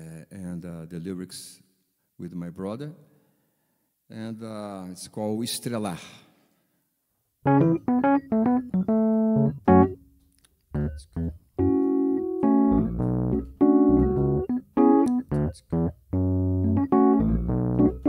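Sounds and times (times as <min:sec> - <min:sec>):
electric piano chords: 0:07.5 - 0:10.0, 0:10.7 - 0:18.0.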